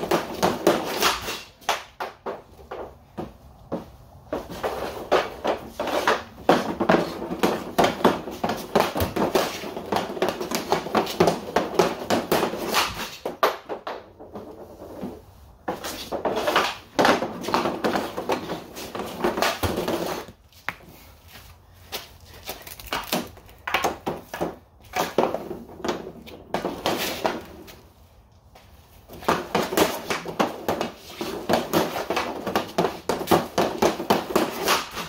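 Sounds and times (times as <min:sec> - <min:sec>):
hockey stick tapping puck on floor: 0:00.0 - 0:15.1, 0:15.7 - 0:20.8, 0:22.9 - 0:27.8, 0:29.1 - 0:35.0.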